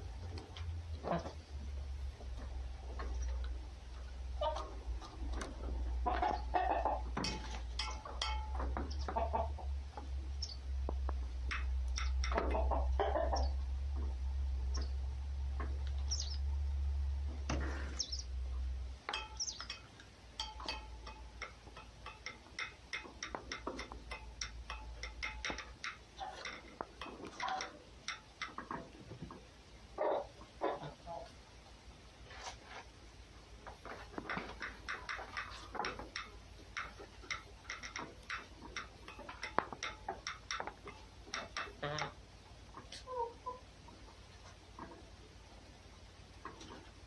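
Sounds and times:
clucking chattering animal calls: 0:04.4 - 0:10.6, 0:11.5 - 0:14.1, 0:20.4 - 0:31.3, 0:33.8 - 0:45.2.

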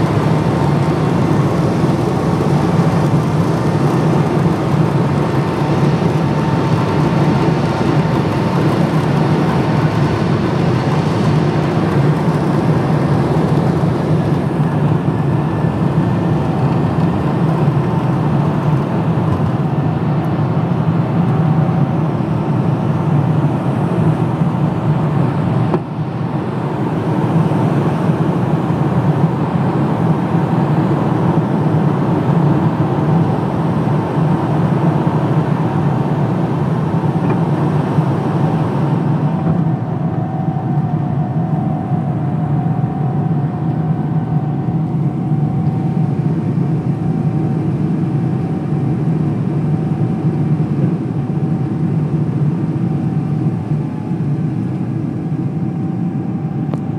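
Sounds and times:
jet engines droning in cabin: 0:00.0 - 0:56.9
faint steady hum: 0:36.8 - 0:56.9.

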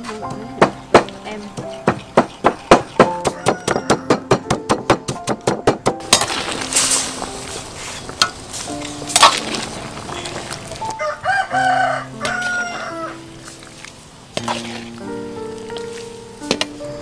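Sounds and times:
rooster crowing: 0:03.2 - 0:04.4, 0:10.9 - 0:13.3.

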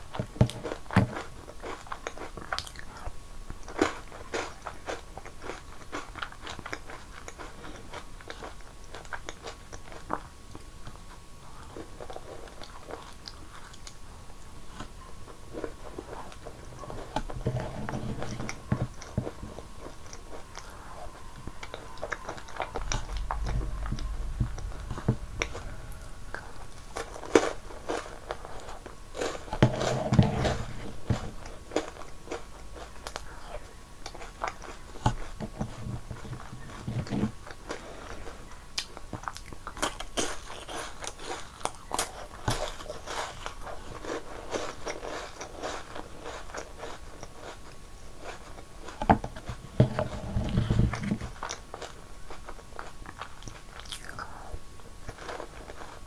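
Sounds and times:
crisp crunching and chewing: 0:00.1 - 0:24.7, 0:25.5 - 0:38.2, 0:38.8 - 0:56.0
wet mouth sounds: 0:53.4 - 0:54.6.

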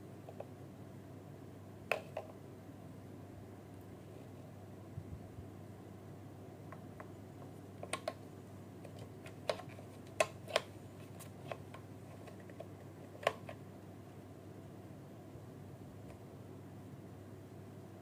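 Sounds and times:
hard plastic clicking: 0:07.8 - 0:08.2, 0:08.8 - 0:13.6.

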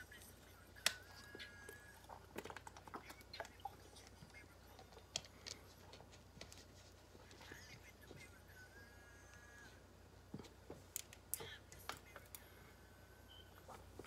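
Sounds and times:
faint clicks and taps: 0:00.8 - 0:08.3.

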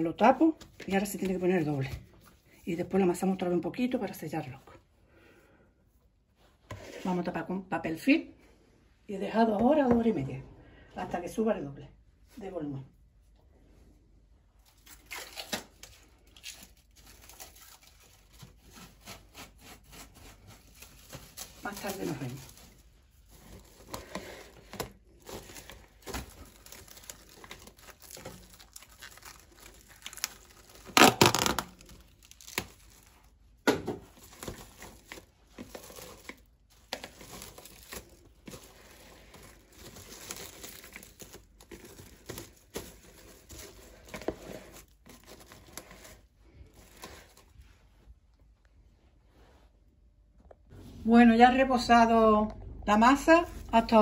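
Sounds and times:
cling film crinkling: 0:14.6 - 0:33.4.

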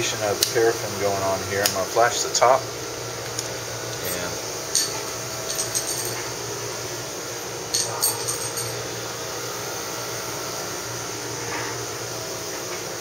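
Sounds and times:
ventilation hum: 0:00.0 - 0:13.0
light clicks and clinks: 0:03.3 - 0:06.3.

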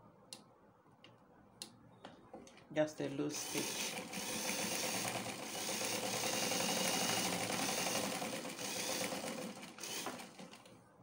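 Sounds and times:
electric sewing machine running: 0:03.3 - 0:10.7.

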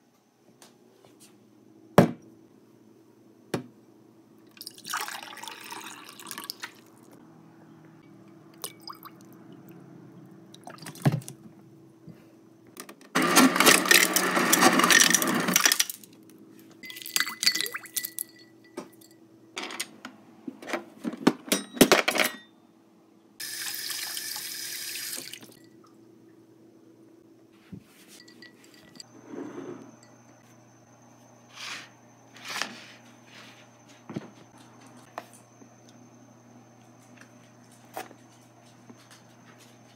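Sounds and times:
water pouring into a glass: 0:04.5 - 0:06.8
ice cubes clinking in glass: 0:13.4 - 0:16.1, 0:16.8 - 0:19.2.

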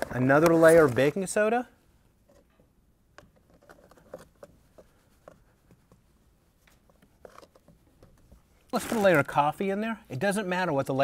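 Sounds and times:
powder pattering onto sand: 0:08.7 - 0:09.4.

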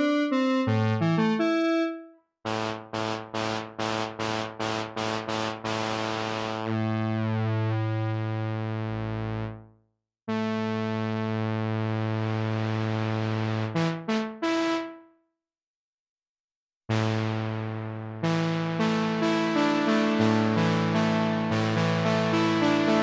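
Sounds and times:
synthesizer notes: 0:19.2 - 0:23.0.

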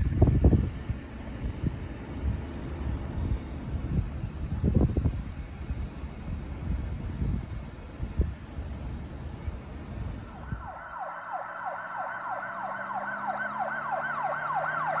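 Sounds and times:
wind buffeting microphone: 0:00.0 - 0:15.0
police siren yelping: 0:10.3 - 0:15.0.

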